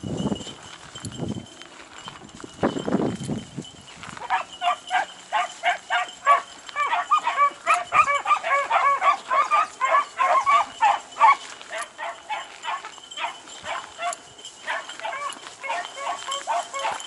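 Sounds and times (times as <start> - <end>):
pack of dogs baying: 4.1 - 17.0.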